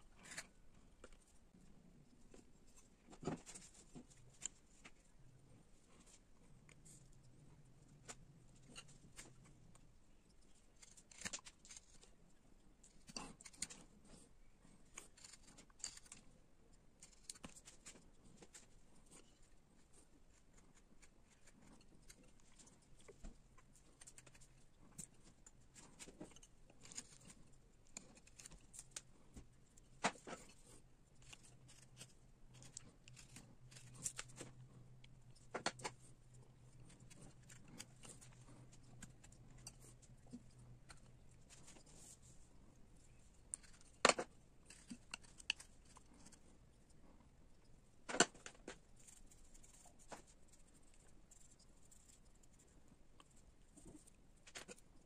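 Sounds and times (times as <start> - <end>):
carving blade cutting wood: 10.8 - 11.8, 15.0 - 16.2.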